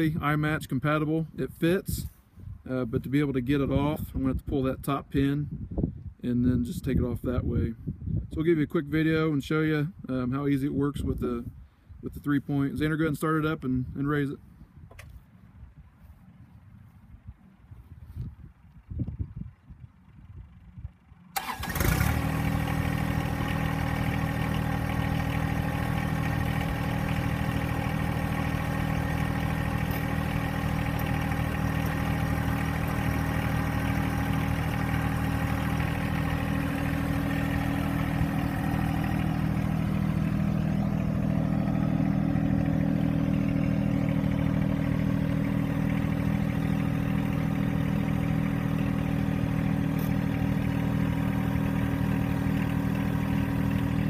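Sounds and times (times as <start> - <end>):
diesel tractor engine running: 14.3 - 54.0.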